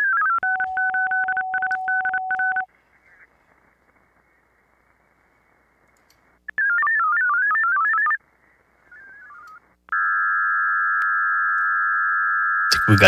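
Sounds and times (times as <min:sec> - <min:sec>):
radio receiver hiss: 0:02.7 - 0:06.5
modem tones hopping in pitch: 0:08.9 - 0:13.0.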